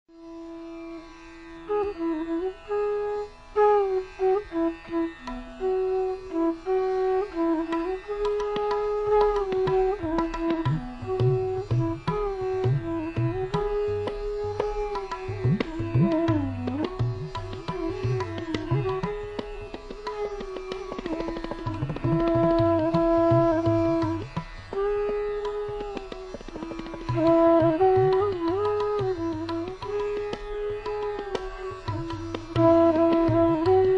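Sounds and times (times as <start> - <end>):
tabla drum strokes: 7.6 - 33.9.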